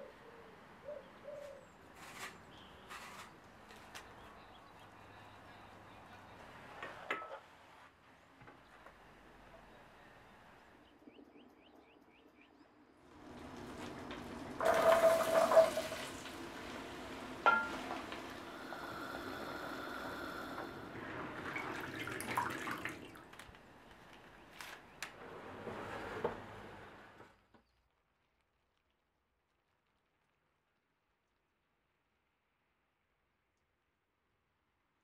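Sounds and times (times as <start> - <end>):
water sloshing in sink: 21.2 - 23.4.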